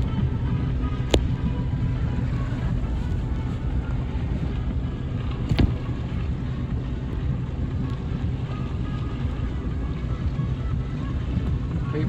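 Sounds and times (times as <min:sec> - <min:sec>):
steady low rumble: 0:00.0 - 0:12.0
sharp knock: 0:05.5 - 0:05.9.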